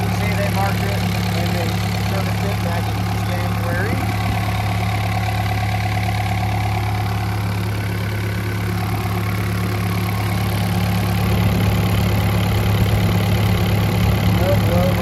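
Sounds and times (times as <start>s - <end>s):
diesel engine idling: 0.0s - 15.0s.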